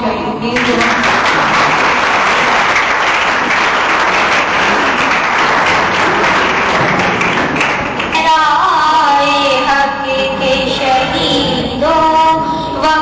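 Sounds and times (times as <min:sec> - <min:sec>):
audience applauding: 0:00.6 - 0:08.2.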